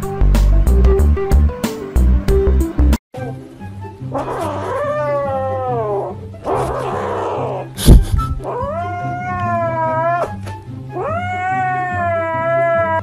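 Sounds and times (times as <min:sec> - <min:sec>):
background music with steady beat: 0:00.0 - 0:04.2, 0:07.7 - 0:09.1
sharp thump: 0:07.8 - 0:08.4
kitten meowing: 0:08.4 - 0:10.3.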